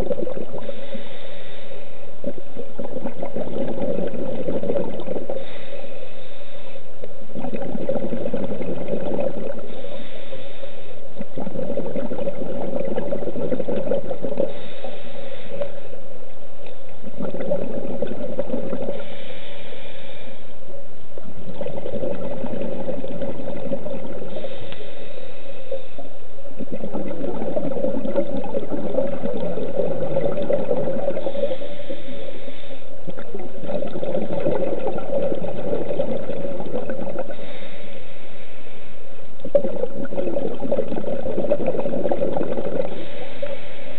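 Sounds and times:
exhaled bubbles rushing: 0.0 - 0.8, 2.2 - 5.5, 7.3 - 9.9, 11.2 - 14.7, 16.9 - 19.2, 21.2 - 24.7, 25.7 - 32.1, 33.0 - 37.5, 39.4 - 43.6
regulator inhale hiss: 0.6 - 2.3, 5.2 - 7.1, 9.5 - 11.2, 14.3 - 16.1, 18.9 - 20.7, 24.2 - 26.4, 30.4 - 33.2, 37.2 - 39.4, 42.7 - 43.9.

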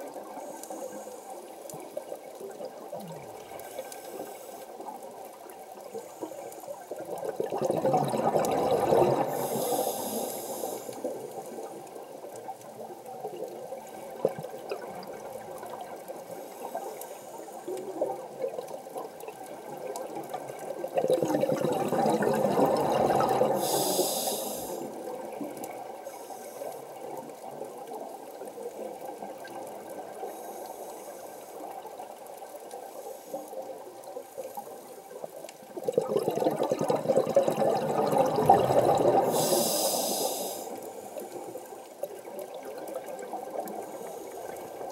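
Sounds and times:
steady underwater rush: 0.0 - 44.9
exhaled bubbles underwater: 7.0 - 16.4, 17.7 - 26.1, 35.6 - 44.9.

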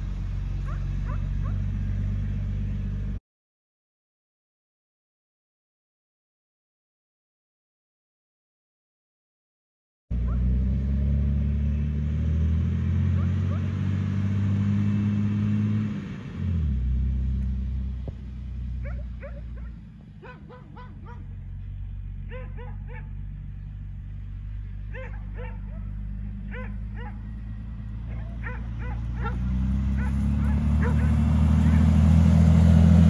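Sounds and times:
car engine running: 0.0 - 3.2, 16.5 - 33.0
dog barking: 0.6 - 1.7, 10.2 - 10.5, 13.2 - 13.8, 18.8 - 21.3, 22.3 - 23.2, 24.9 - 27.3, 28.0 - 31.9.

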